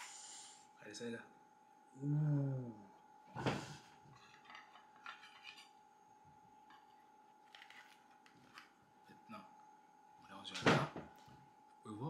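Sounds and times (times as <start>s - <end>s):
faint steady hum: 0.0s - 12.0s
cutlery clinking and scraping on plate: 4.2s - 5.8s.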